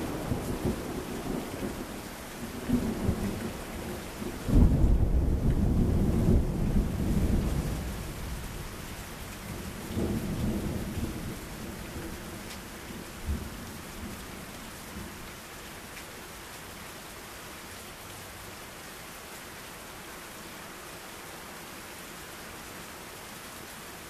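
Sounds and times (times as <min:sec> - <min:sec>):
steady rain: 0:00.0 - 0:24.0
thunder rumbling: 0:02.7 - 0:08.6.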